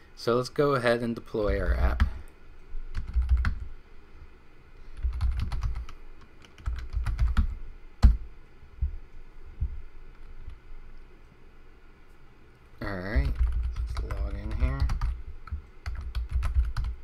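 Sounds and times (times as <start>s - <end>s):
computer keyboard typing: 2.9s - 3.7s, 5.0s - 8.2s, 12.8s - 17.0s.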